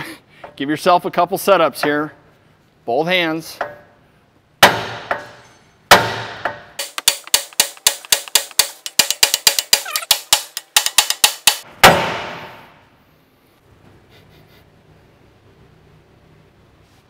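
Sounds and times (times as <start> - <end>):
sledgehammer striking metal: 4.6 - 12.9.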